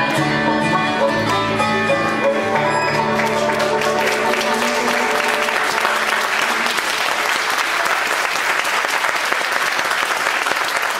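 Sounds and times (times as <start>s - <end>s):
acoustic guitars and mandolins chord: 0.0s - 6.8s
audience applauding: 2.9s - 10.9s.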